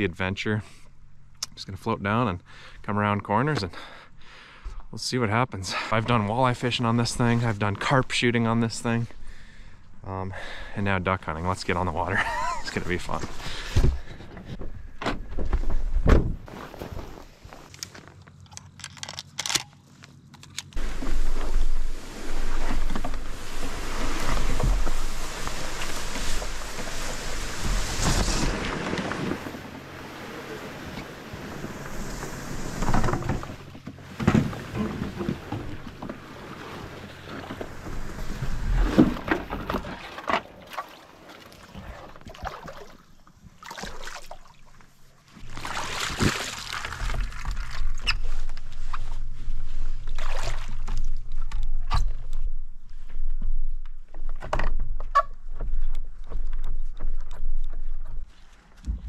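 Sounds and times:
board dragged through tall grass: 16.4s - 18.1s, 20.8s - 40.0s
shotgun handling clicks: 17.7s - 20.8s
water sloshing: 20.8s - 51.8s.

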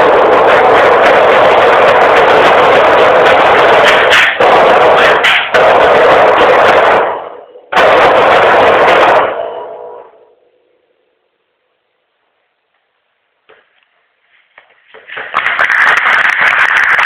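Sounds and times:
percussion ensemble drumming: 0.0s - 7.1s
faint ringing: 9.3s - 12.5s.

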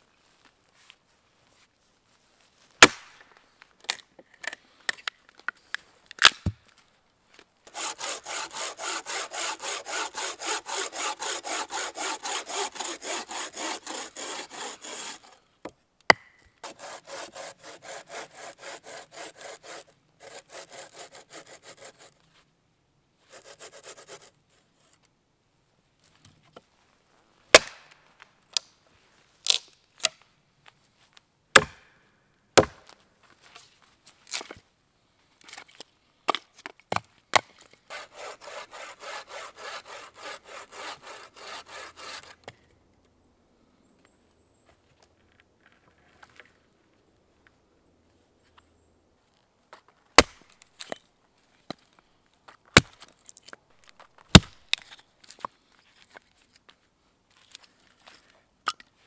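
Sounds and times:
bucksaw rasping through log: 7.7s - 15.4s, 16.6s - 22.2s, 23.3s - 24.3s, 37.9s - 42.5s.

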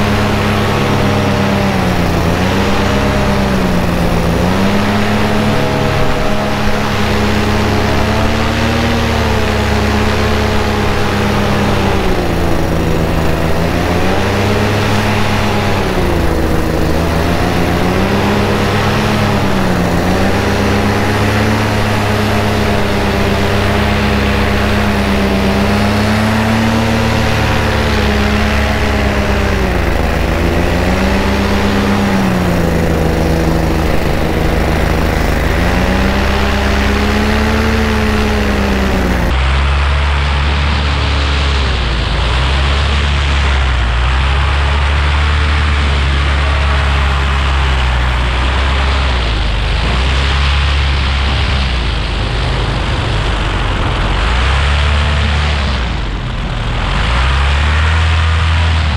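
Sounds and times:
wind rush: 0.0s - 45.0s
paramotor engine and propeller: 0.0s - 58.9s.

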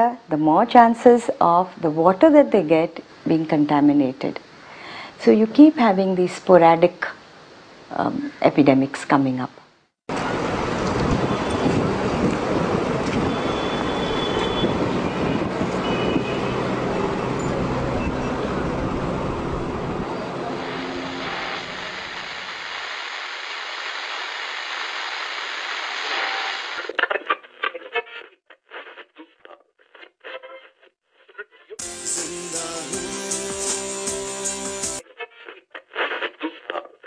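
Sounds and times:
vehicle noise: 10.1s - 22.6s.

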